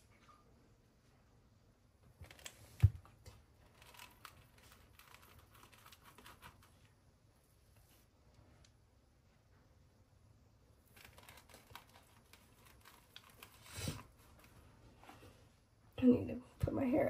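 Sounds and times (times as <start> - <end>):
hands rustling cookie dough: 2.2 - 8.7, 10.8 - 15.8.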